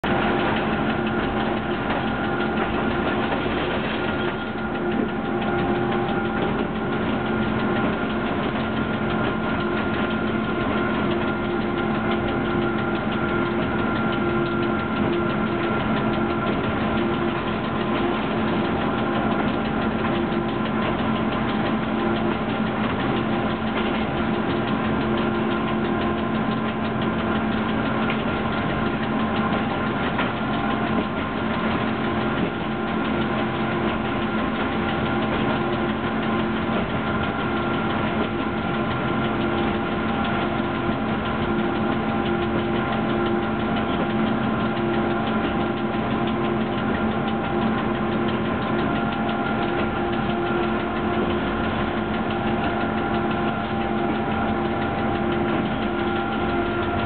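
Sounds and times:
electric motor hum and whine: 0.0 - 57.0
wheels on rails: 0.0 - 57.0.

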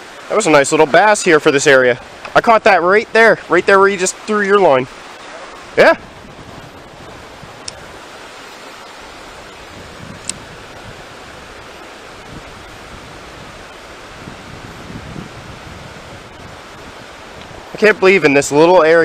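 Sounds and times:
river flowing over rocks: 0.0 - 19.0.

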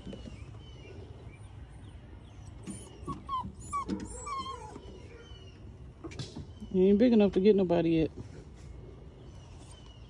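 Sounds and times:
puppy whimpering and yipping: 2.5 - 5.1.

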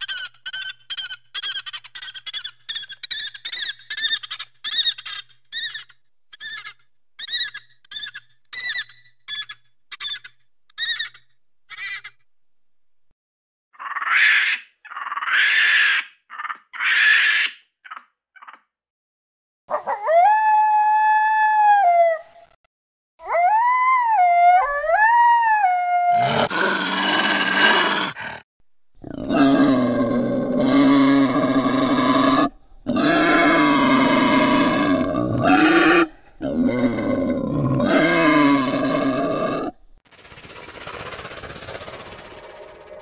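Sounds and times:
creature whining howls: 23.2 - 28.4, 29.1 - 39.8
creature deep roars: 26.1 - 28.4, 29.0 - 39.8
creature raspy growl: 26.2 - 28.4, 29.0 - 39.8.

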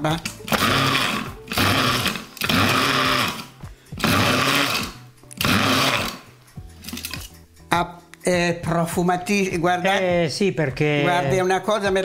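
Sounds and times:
electric chopper motor whirring: 0.5 - 6.3.

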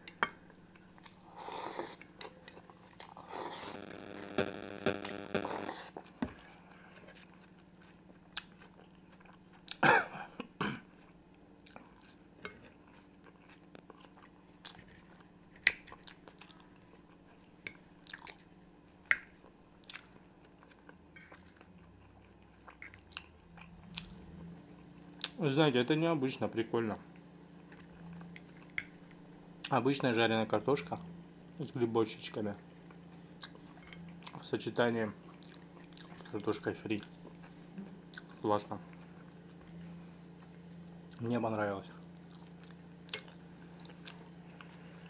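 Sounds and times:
chewing and biting: 6.4 - 9.8, 11.0 - 18.5, 19.1 - 25.4, 32.9 - 34.4, 35.2 - 36.3, 42.3 - 45.0.

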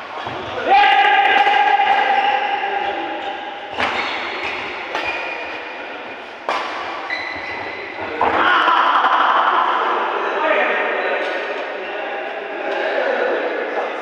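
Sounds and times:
rackets hitting shuttlecock: 1.3 - 5.7, 6.4 - 8.4.

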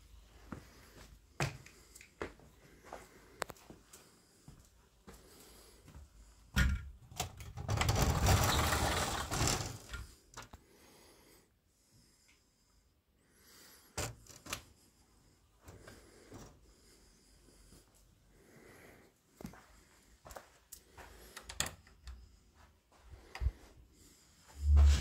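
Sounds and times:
door scraping and rattling: 7.2 - 10.1.

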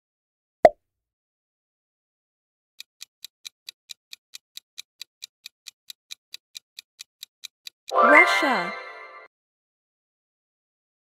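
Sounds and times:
clock ticking: 2.8 - 8.6.

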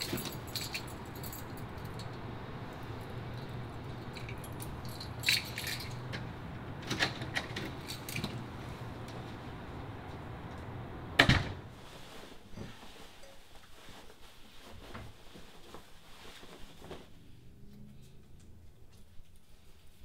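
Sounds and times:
keys jangling in door lock: 0.0 - 2.2, 3.3 - 6.2, 6.9 - 8.4
steady low hum: 0.0 - 12.8
door shutting: 10.6 - 11.7.

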